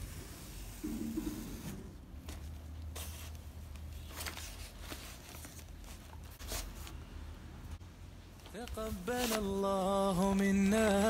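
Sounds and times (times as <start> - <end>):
paper bags rustling: 2.2 - 7.0, 8.4 - 11.0.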